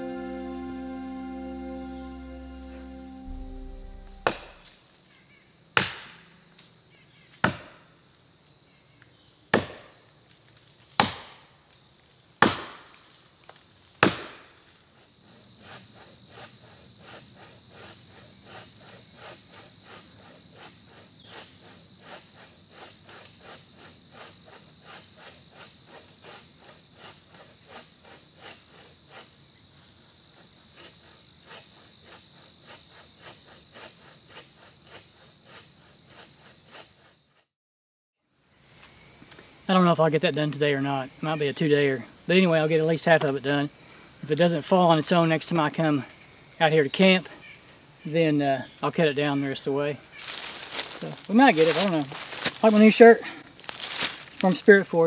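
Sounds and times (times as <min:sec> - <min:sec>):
quiet fast chopping strokes: 0:00.0 - 0:04.7, 0:30.8 - 0:37.2
high insect trill: 0:00.0 - 0:09.4, 0:10.1 - 0:37.5, 0:38.2 - 0:55.0
axe chopping tree: 0:05.8 - 0:06.2, 0:07.4 - 0:07.8, 0:09.5 - 0:10.0, 0:10.9 - 0:11.4, 0:12.4 - 0:13.0, 0:14.0 - 0:14.5.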